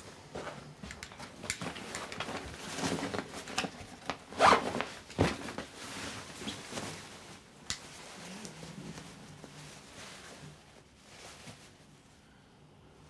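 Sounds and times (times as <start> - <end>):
rustling and scraping handling noises: 0.0 - 12.4.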